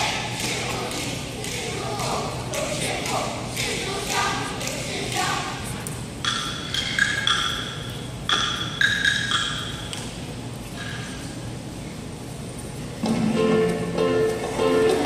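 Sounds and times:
high ringing struck notes melody: 0:13.3 - 0:15.0.

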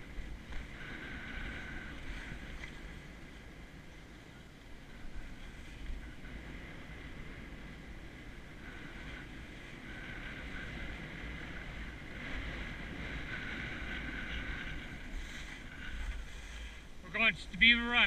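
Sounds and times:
wind rumbling on microphone: 0:00.0 - 0:18.0
skis scraping over snow: 0:04.2 - 0:18.0.

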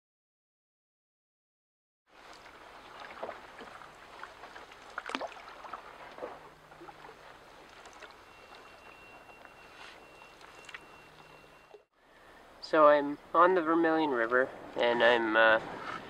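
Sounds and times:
canoe paddle splashing water: 0:02.1 - 0:11.8
water lapping at hull: 0:02.1 - 0:11.9.

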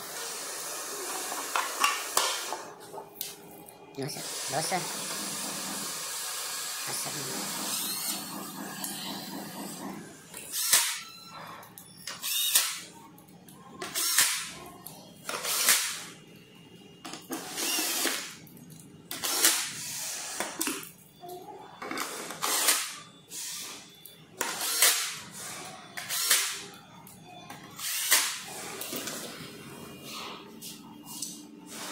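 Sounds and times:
cordless drill running: 0:04.2 - 0:08.3, 0:17.4 - 0:18.2.

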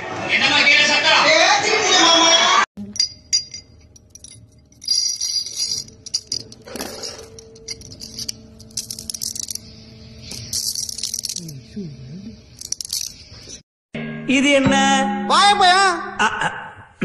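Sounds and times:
steel balls clinking and rattling: 0:02.8 - 0:13.6.

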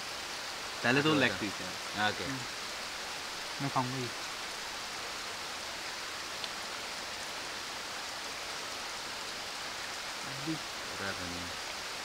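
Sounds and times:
faint tick: 0:06.4 - 0:06.6.

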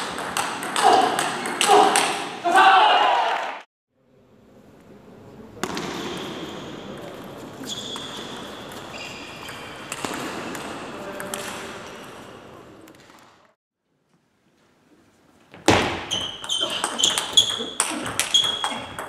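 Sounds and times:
crowd cheering and shouting: 0:01.7 - 0:03.6.

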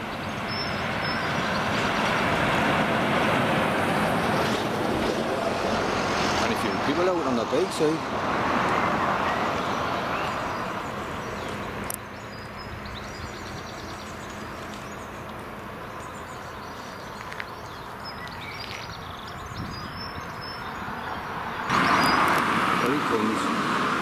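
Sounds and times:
small birds chirping: 0:00.0 - 0:02.4, 0:08.7 - 0:23.3
distant traffic hum: 0:00.0 - 0:24.0
vehicle passing: 0:00.0 - 0:24.0.

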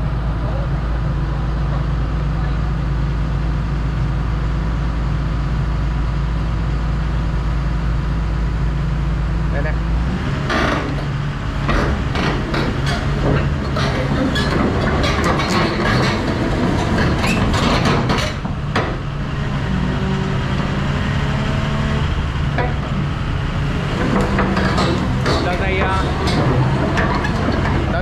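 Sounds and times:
diesel engine running: 0:00.0 - 0:28.0
metallic knocks and clatter: 0:10.4 - 0:19.2, 0:22.5 - 0:28.0.

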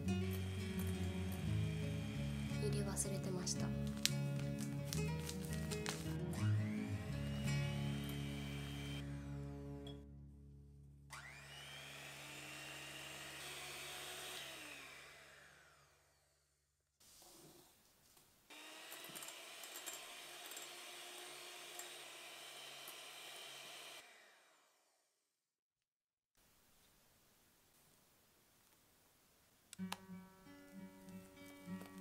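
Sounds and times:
electric hand mixer beating: 0:00.0 - 0:09.6, 0:11.1 - 0:16.2, 0:18.5 - 0:24.9.

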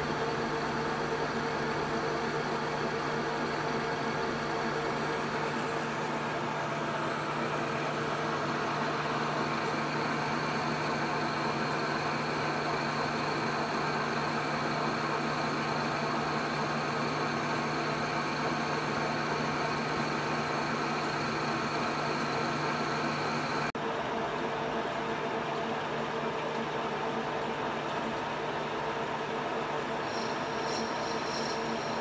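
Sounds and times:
metal lathe humming: 0:00.0 - 0:23.7, 0:30.0 - 0:32.0
boring bar cutting hiss: 0:30.0 - 0:32.0.

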